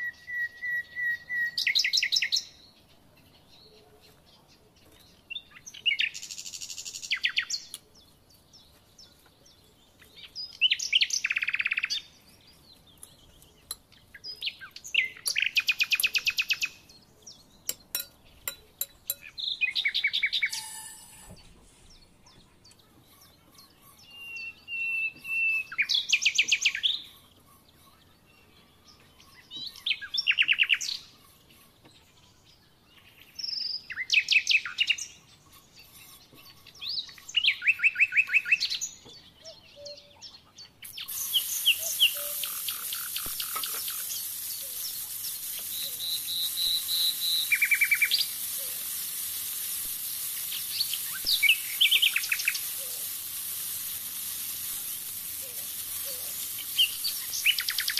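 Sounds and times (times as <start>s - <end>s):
songbird singing trilled phrases: 0.0s - 57.9s
food sizzling in oil: 20.3s - 21.4s, 40.9s - 57.9s.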